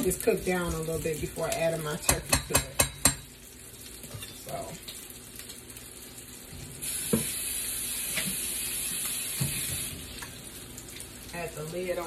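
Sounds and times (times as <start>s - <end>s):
faucet water running into sink: 0.0s - 12.0s
sausage sizzling on a griddle: 2.9s - 12.0s.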